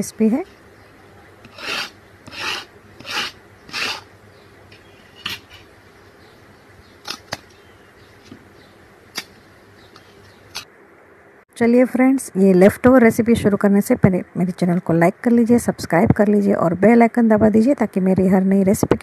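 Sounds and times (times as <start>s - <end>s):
fork scraping crisp flatbread: 1.4s - 4.1s, 5.1s - 5.7s
crisp flatbread snapping: 7.0s - 7.6s, 9.1s - 9.4s.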